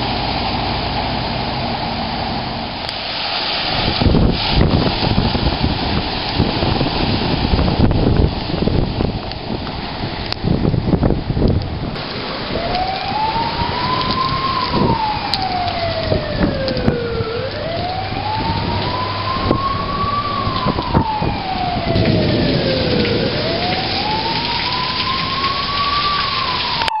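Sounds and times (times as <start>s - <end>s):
rain pouring on pavement: 0.0s - 27.0s
siren wailing: 12.0s - 27.0s.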